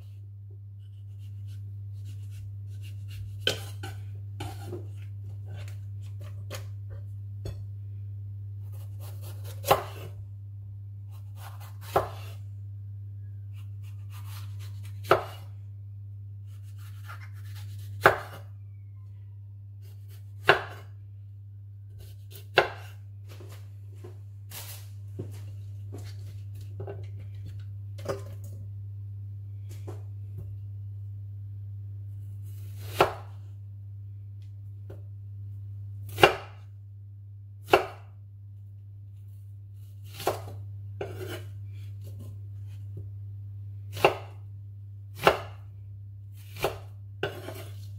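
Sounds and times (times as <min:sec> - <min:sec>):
low hum: 0:00.0 - 0:37.6, 0:38.2 - 0:47.9
knife cutting vegetables: 0:00.8 - 0:07.0, 0:08.6 - 0:10.2, 0:11.1 - 0:12.4, 0:13.5 - 0:15.5, 0:16.5 - 0:18.5, 0:39.8 - 0:42.3, 0:46.4 - 0:47.9.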